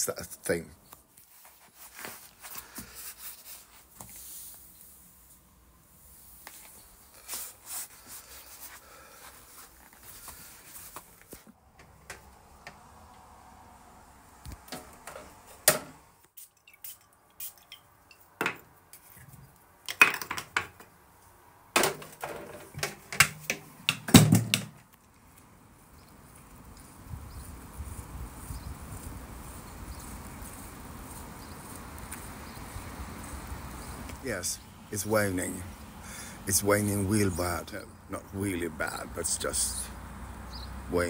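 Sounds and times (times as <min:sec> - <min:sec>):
objects being handled: 0:00.9 - 0:05.0, 0:14.5 - 0:21.0, 0:21.8 - 0:25.1.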